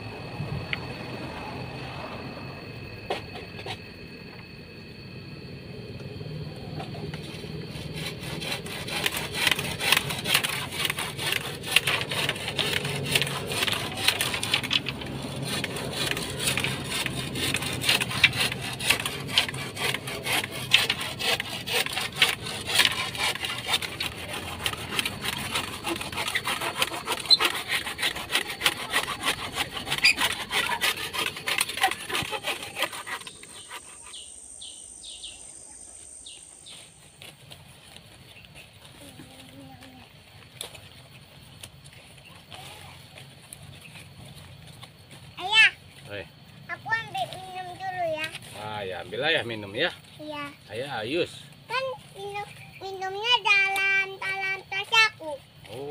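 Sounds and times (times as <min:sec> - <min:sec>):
hand saw rasping through wood: 0:07.3 - 0:34.7.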